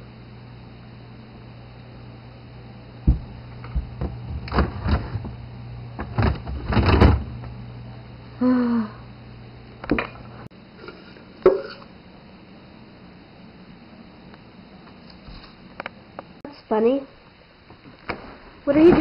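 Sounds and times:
refrigerator low hum: 0.0 - 19.0
plastic drawer knocks and clatter: 3.1 - 5.3, 6.0 - 7.3.

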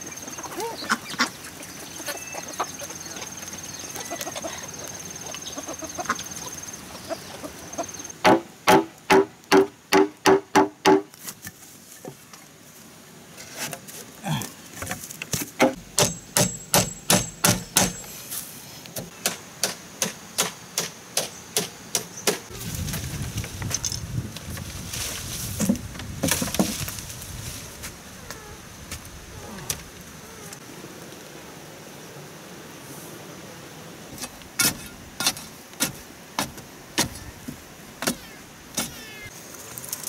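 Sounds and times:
bamboo being chopped: 8.2 - 11.6, 15.2 - 18.0.

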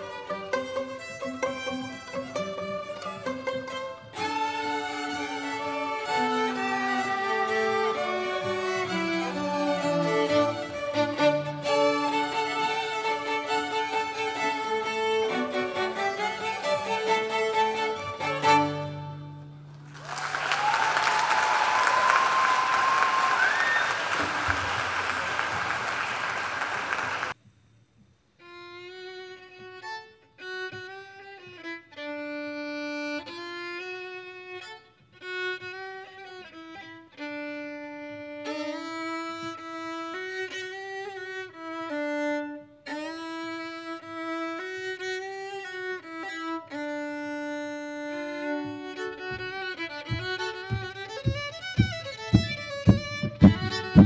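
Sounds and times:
two violins playing a duet: 0.0 - 19.9, 28.4 - 54.0
audience applause: 19.8 - 27.4.

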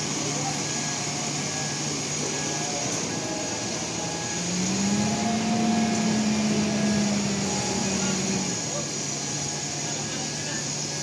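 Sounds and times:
truck diesel engine running: 0.0 - 11.0.

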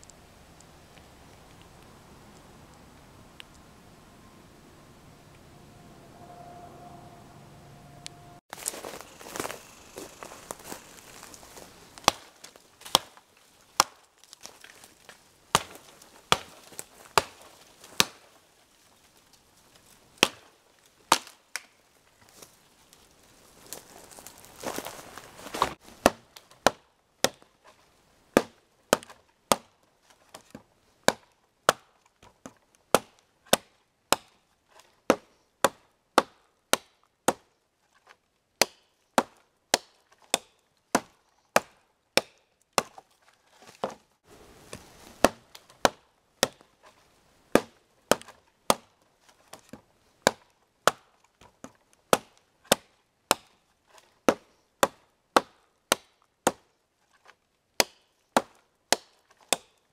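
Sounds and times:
rustling: 8.5 - 20.2, 22.0 - 26.6, 43.0 - 45.9
axe chopping wood: 12.0 - 14.6, 15.5 - 18.3, 20.2 - 20.5, 21.1 - 21.7, 25.5 - 27.6, 28.3 - 43.0, 43.6 - 44.0, 44.7 - 46.9, 47.5 - 56.7, 57.8 - 59.8.

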